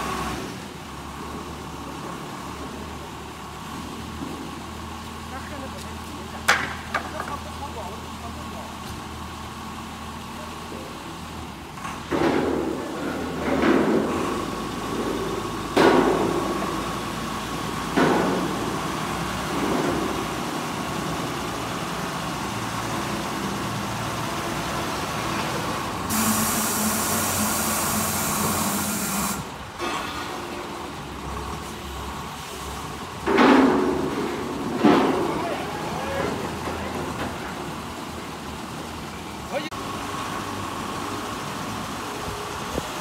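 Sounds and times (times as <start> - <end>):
diesel engine running: 0.0 - 43.0
loud hiss: 26.1 - 29.6.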